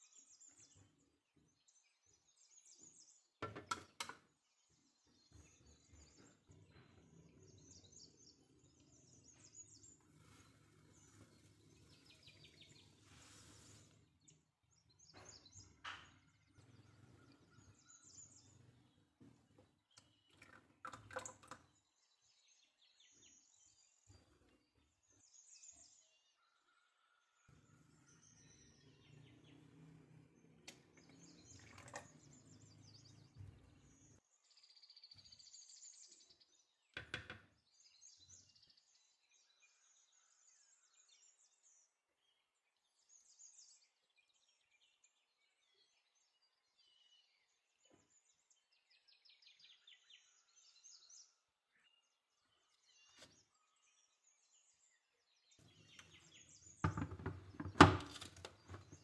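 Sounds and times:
faint bird chirps: 4.6s - 29.7s
knock: 56.8s - 58.0s.

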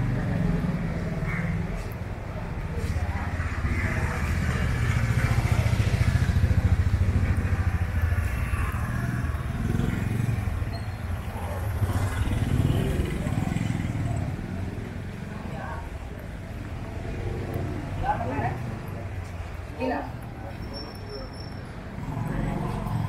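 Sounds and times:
motorcycle engine running: 0.0s - 15.3s.

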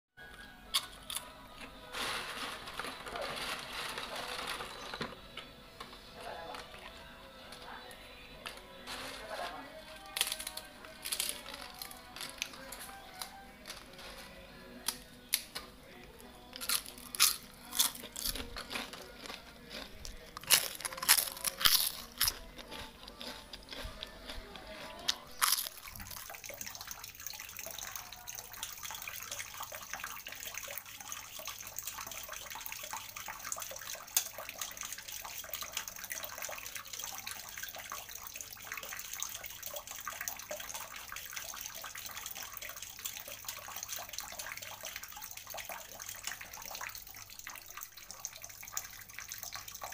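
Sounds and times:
potato chips crunching: 0.7s - 3.2s, 10.1s - 13.9s, 16.5s - 26.6s.

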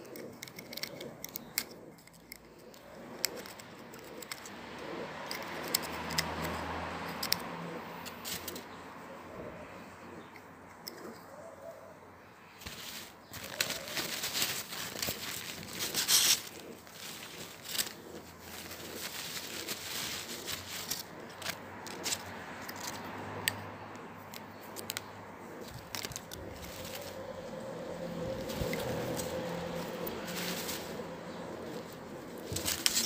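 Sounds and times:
plastic packaging crinkling: 12.6s - 22.2s, 25.6s - 27.2s.

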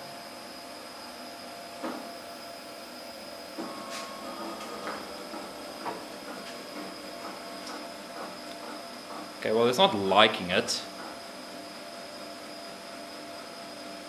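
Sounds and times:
fan whirring with high whine: 0.0s - 14.0s
brief motor whine: 3.4s - 7.0s.

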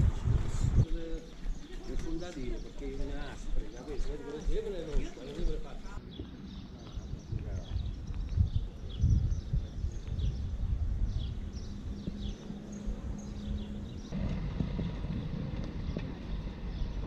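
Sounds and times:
wind rumbling on microphone: 0.0s - 17.0s
small birds chirping: 0.5s - 17.0s
outdoor background hum: 5.0s - 17.0s.

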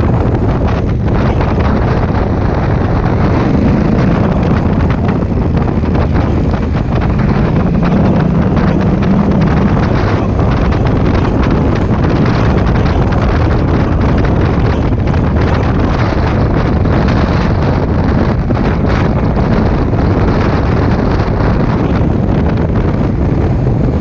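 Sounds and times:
motorcycle engine accelerating: 0.0s - 24.0s
wind buffeting microphone: 0.0s - 24.0s.

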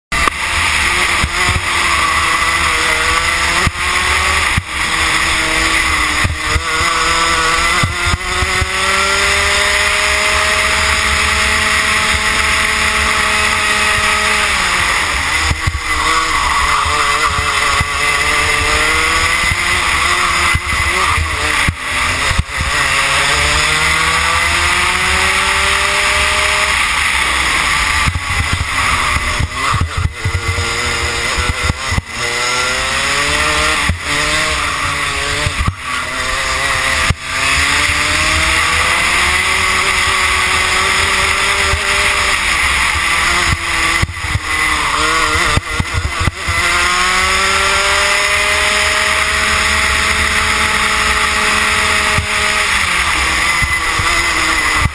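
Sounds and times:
kart engine revving: 0.0s - 54.9s.

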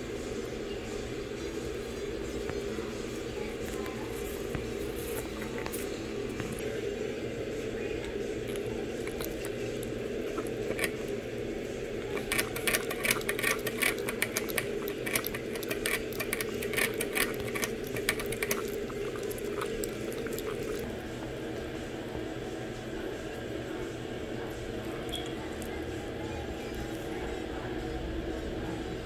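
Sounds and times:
steady low hum: 0.0s - 29.0s
puppy drinking from sipper tube: 8.1s - 21.7s.

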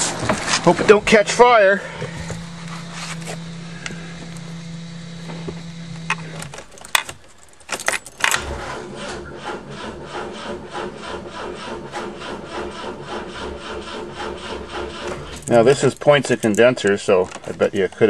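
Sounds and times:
electric fuel pump buzzing: 0.0s - 15.6s
starter cranking engine: 1.0s - 17.8s
clicks: 15.1s - 18.0s.

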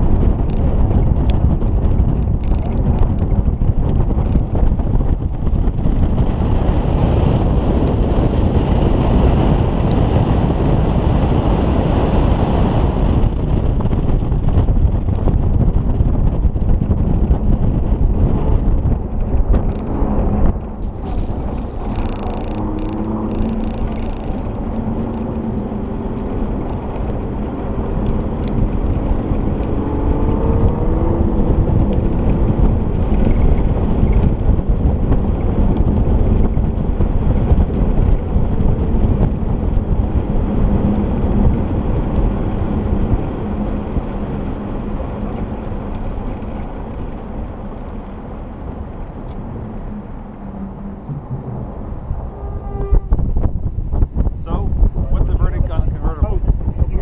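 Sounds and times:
car engine accelerating: 0.0s - 57.0s
wind buffeting microphone: 0.0s - 57.0s.

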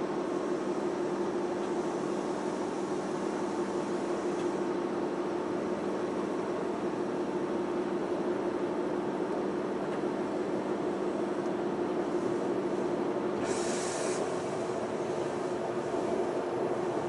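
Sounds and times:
electric train hum and rolling: 0.0s - 17.0s
brief hiss: 13.4s - 14.4s.

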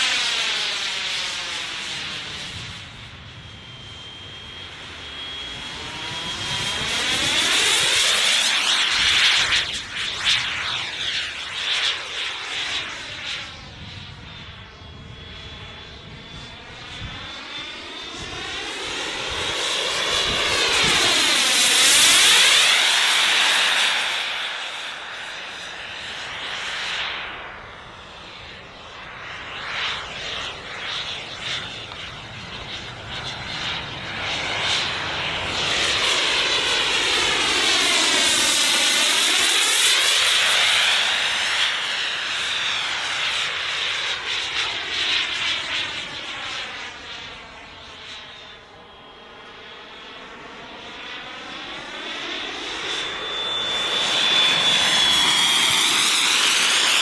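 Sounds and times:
model jet turbine whine: 0.0s - 57.0s.

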